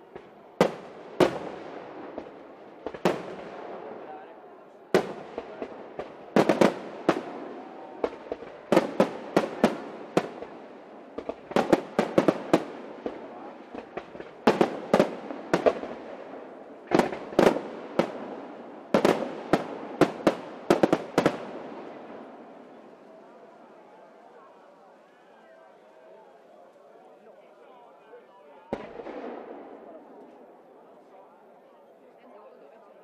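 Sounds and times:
fireworks bursting with sharp bangs: 0.0s - 24.4s, 28.7s - 31.1s.

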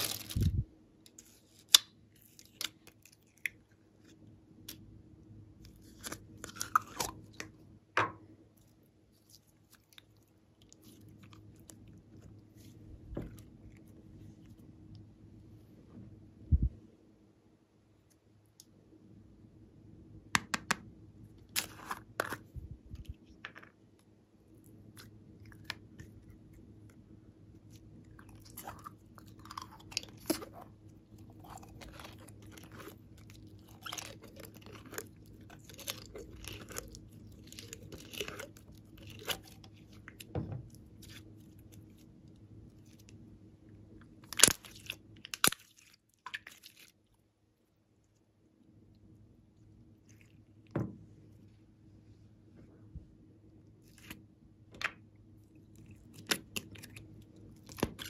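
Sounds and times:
slime crackling and popping: 31.2s - 40.3s, 44.2s - 46.8s.

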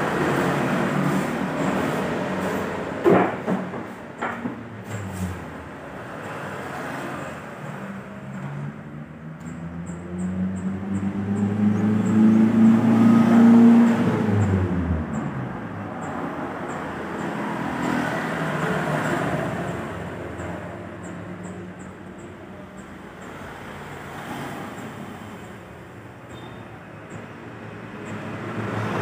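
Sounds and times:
vehicle passing by: 0.0s - 3.1s, 4.8s - 21.8s, 27.2s - 29.0s
quieter vehicle passing: 5.1s - 21.0s.

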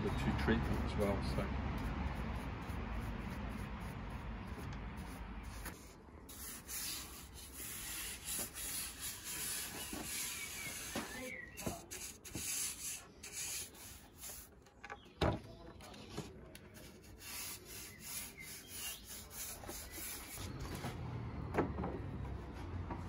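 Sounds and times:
paintbrush swishing on wood: 1.8s - 14.5s.

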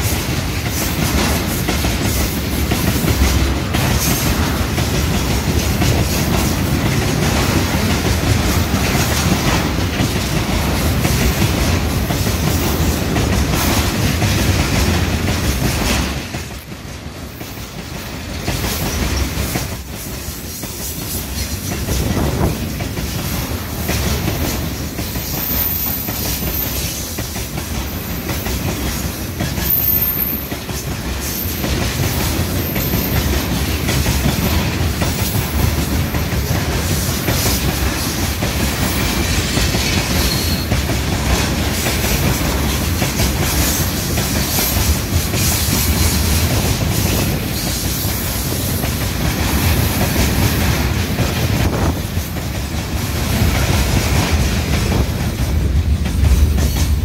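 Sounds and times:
clickety-clack over rail joints: 0.0s - 57.0s
train wheels rumbling on rails: 0.0s - 57.0s
faint high wheel squeals: 25.3s - 26.8s, 29.6s - 30.5s, 40.2s - 40.7s.

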